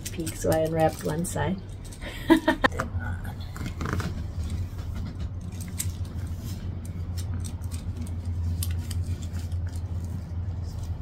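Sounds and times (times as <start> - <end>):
paper rustling and crinkling: 3.5 - 11.0.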